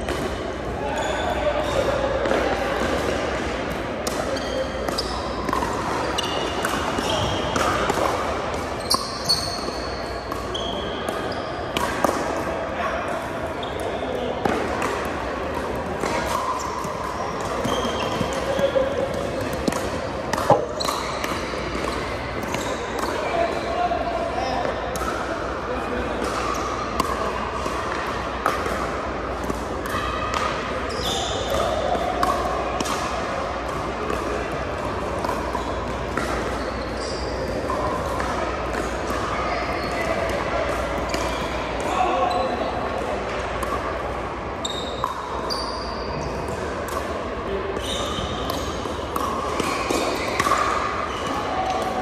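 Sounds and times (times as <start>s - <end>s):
murmur of voices: 0.0s - 52.0s
shoes squeaking on floor: 4.4s - 5.4s, 8.8s - 11.6s, 16.7s - 18.6s, 20.0s - 21.6s, 30.9s - 31.5s, 36.6s - 37.7s, 44.6s - 46.3s, 47.8s - 48.8s
ball bouncing on court: 17.6s - 23.1s
paddles striking balls: 19.5s - 21.4s
balls bouncing on hardwood floor: 19.6s - 21.0s.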